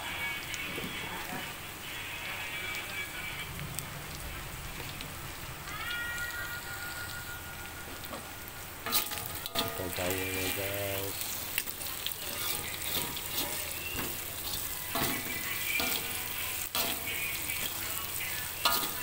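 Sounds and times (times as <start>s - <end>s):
snails sizzling in oil: 0.0s - 19.0s
spatula scraping a wok: 8.8s - 19.0s.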